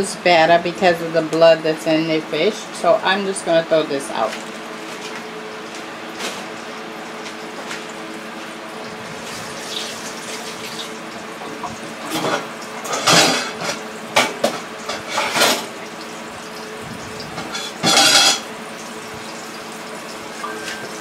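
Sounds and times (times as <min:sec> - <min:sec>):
dishes and utensils clattering: 0:11.4 - 0:15.7, 0:17.4 - 0:18.5.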